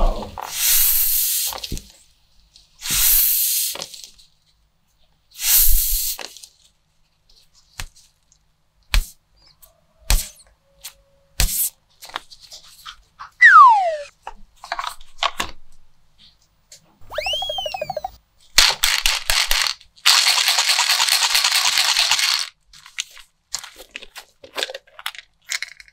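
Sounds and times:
squeeze toys hissing: 0.5 - 1.7, 2.8 - 3.8, 5.4 - 6.2.

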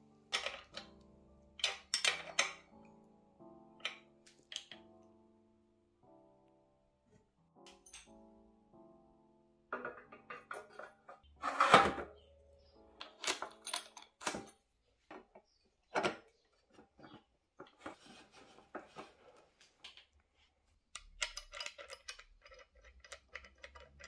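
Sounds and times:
soft background music: 0.0 - 24.0
metal clinks and knocks: 9.7 - 11.2.

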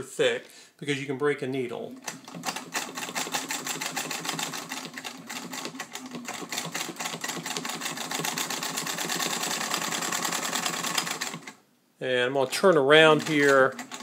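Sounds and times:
sewing machine motor hum: 1.9 - 11.6, 12.8 - 14.0
sewing machine stitching: 1.9 - 11.6, 12.4 - 14.0.

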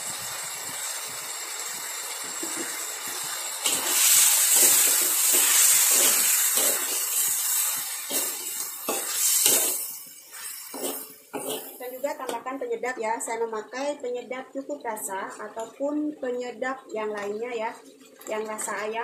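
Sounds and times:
meat sizzling in oil: 0.0 - 12.4
metal spatula scraping wok: 3.6 - 12.0.

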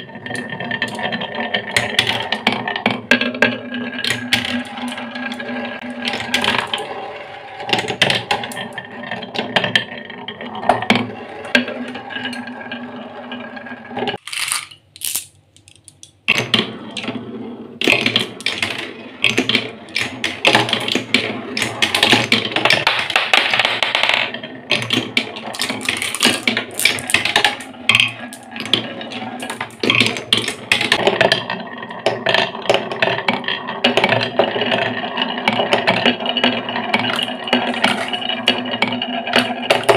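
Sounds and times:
marbles rolling on wooden tracks: 0.0 - 39.9
marbles clicking: 14.1 - 16.6, 17.8 - 39.9.

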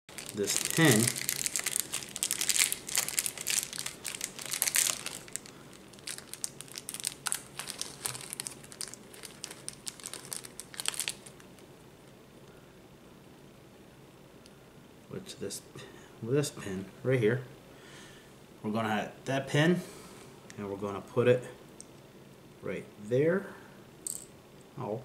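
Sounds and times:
plastic bag crinkling: 0.1 - 11.6.

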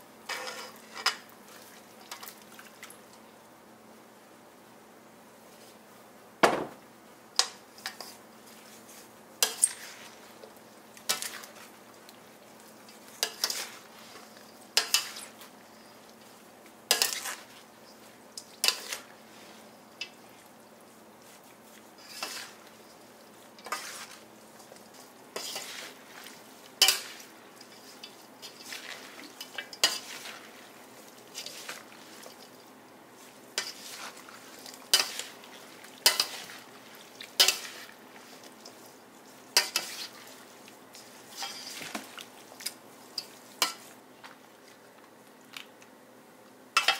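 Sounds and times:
shredded salad rustling: 12.6 - 16.4, 17.0 - 43.9.

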